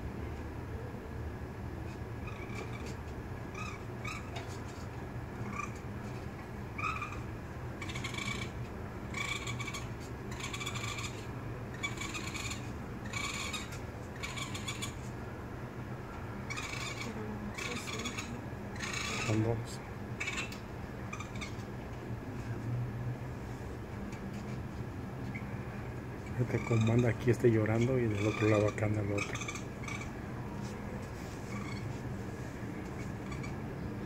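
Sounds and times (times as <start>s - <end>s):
raccoon kits crying: 5.4s - 5.8s, 6.7s - 15.1s, 16.4s - 21.6s, 26.2s - 30.2s, 31.5s - 31.9s, 33.0s - 33.6s.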